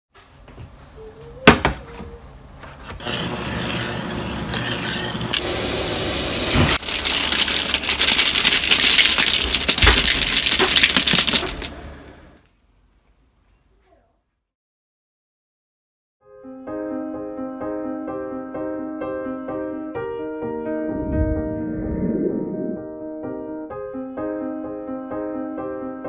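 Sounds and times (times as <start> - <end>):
noodles and ice scraping in strainer: 3.0 - 11.9.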